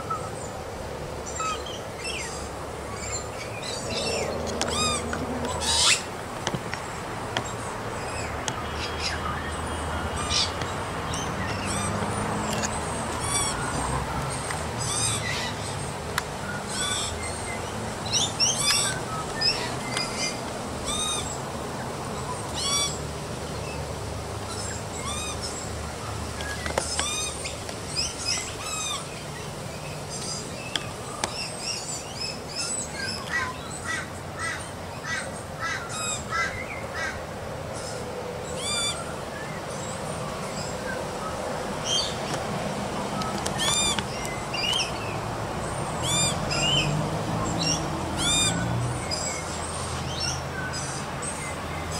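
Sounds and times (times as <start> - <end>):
magpie squawks and chirps: 14.8 - 15.8, 16.6 - 17.2.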